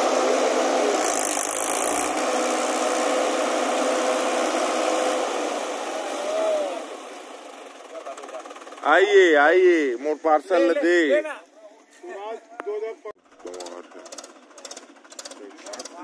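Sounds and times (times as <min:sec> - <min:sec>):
tractor diesel engine running hard: 0:02.1 - 0:09.3.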